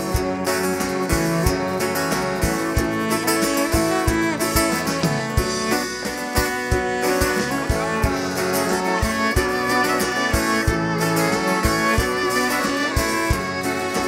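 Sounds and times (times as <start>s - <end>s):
bowed cello: 0.0s - 14.0s
drums keeping a beat: 0.0s - 14.0s
strummed acoustic guitar: 0.0s - 14.0s
violin: 0.0s - 14.0s.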